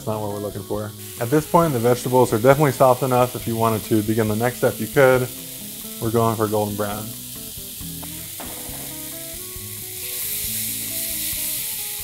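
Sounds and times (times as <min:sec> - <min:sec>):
vegetables sizzling in a pan: 0:00.0 - 0:12.0
wooden spoon knocking on pan: 0:08.0 - 0:09.6.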